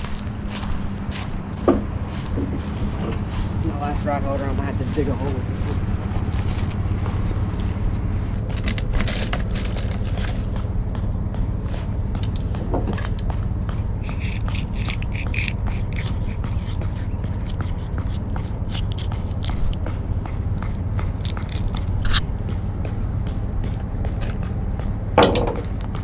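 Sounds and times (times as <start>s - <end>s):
knife cutting through fish: 14.0s - 19.8s.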